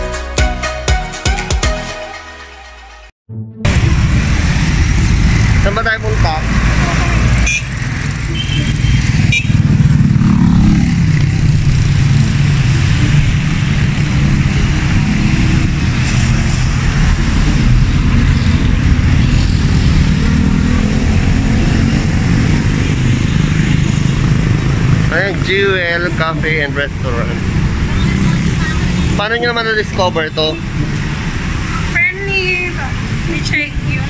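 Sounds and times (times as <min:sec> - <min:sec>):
cars and motorcycles passing: 0:03.7 - 0:34.0.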